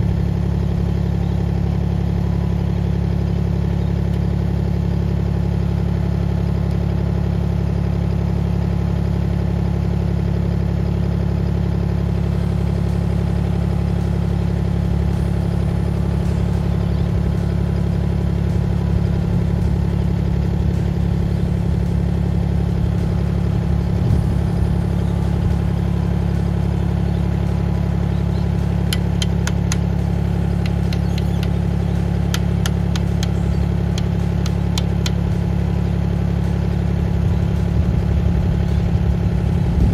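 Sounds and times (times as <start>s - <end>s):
excavator engine running: 0.0s - 39.9s
sharp clicks: 28.9s - 29.9s, 30.6s - 31.6s, 32.3s - 35.4s.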